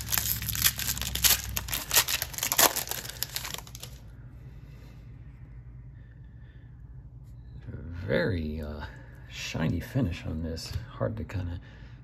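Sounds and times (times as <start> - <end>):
cards rustling: 0.0 - 4.0
foil wrapper tearing and crinkling: 0.0 - 4.0.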